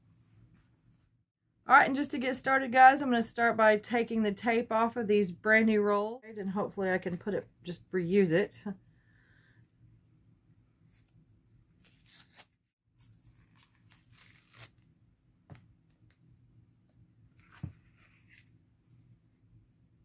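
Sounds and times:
tape peeling off ribbon rolls: 0:11.8 - 0:12.6, 0:13.8 - 0:14.9.

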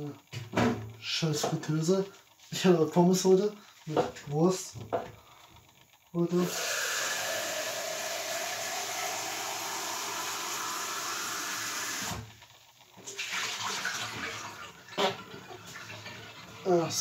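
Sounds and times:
tap water running into sink: 0:06.4 - 0:12.2, 0:13.0 - 0:16.3
clatter of things in sink: 0:13.0 - 0:17.0.

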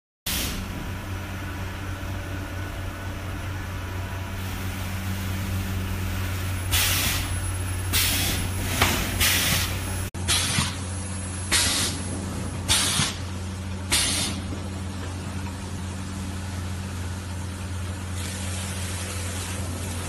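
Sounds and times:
short air hisses: 0:00.3 - 0:00.7, 0:06.7 - 0:07.3, 0:07.9 - 0:10.8, 0:11.5 - 0:12.0, 0:12.7 - 0:13.2, 0:13.9 - 0:14.4.

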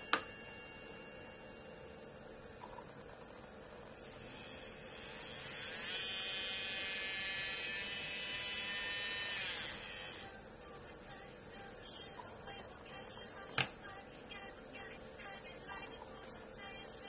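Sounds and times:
nail drill motor whining: 0:04.1 - 0:10.2.

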